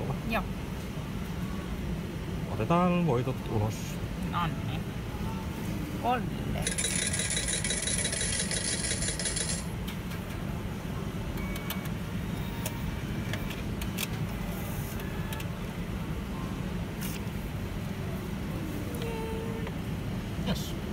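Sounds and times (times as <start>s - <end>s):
low hum of gaming machines: 0.0s - 20.9s
slot machine high buzz: 6.6s - 9.7s.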